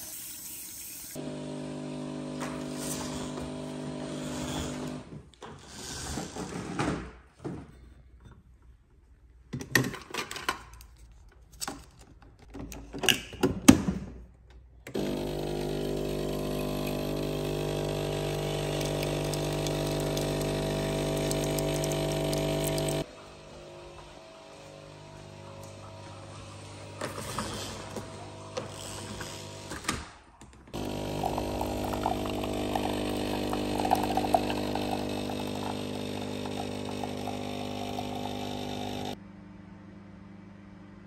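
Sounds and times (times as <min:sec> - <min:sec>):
coffee machine pump buzzing hum: 0:00.8 - 0:05.1, 0:14.9 - 0:23.2, 0:24.5 - 0:27.2, 0:30.7 - 0:39.2.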